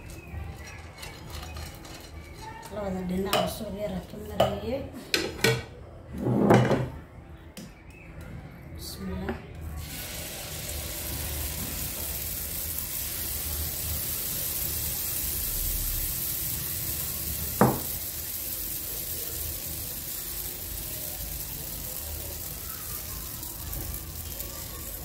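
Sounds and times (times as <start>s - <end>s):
batter sizzling in waffle maker: 9.8s - 25.0s.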